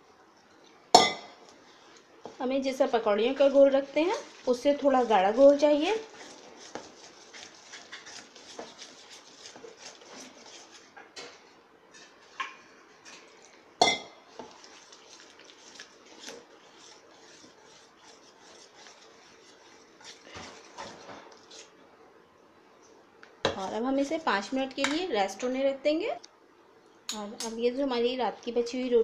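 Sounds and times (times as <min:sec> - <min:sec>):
spoon clinking against metal bowl: 0:13.8 - 0:14.2.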